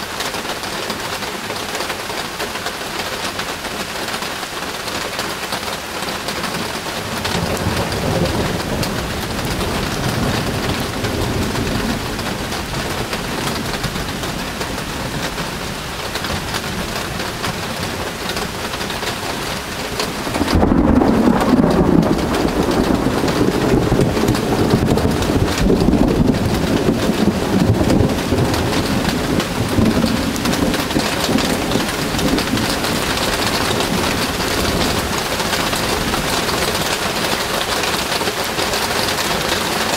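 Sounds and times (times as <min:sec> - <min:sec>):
rain falling: 0:00.0 - 0:39.9
low rumble of thunder: 0:06.6 - 0:18.0, 0:19.9 - 0:37.9.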